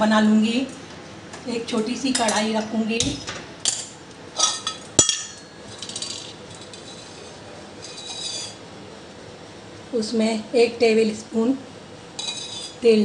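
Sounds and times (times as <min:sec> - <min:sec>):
metal pot clinking on stove: 0:03.7 - 0:08.6, 0:12.2 - 0:12.8
sharp ringing metal clank: 0:04.4 - 0:05.6.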